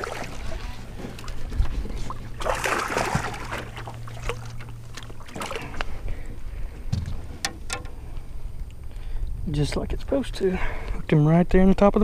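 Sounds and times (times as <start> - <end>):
low steady hum: 0.0 - 12.0
knocks and clicks on boat deck: 6.9 - 8.0.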